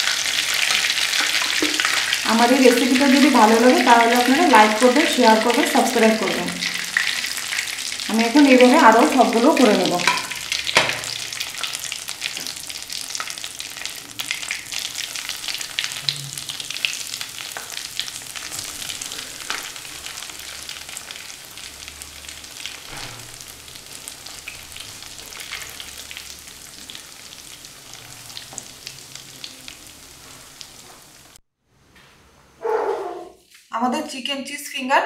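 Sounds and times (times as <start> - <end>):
food deep-frying in hot oil: 0.0 - 31.4.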